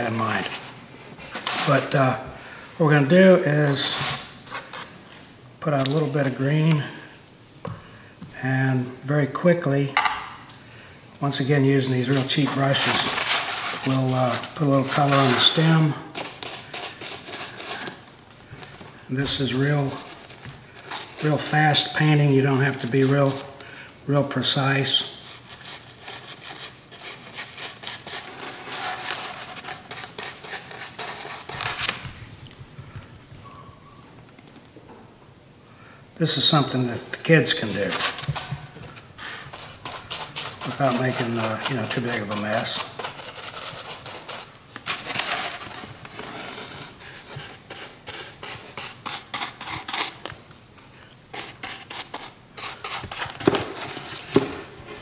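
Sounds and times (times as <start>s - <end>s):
paintbrush scrubbing: 12.0s - 18.0s, 39.2s - 44.6s.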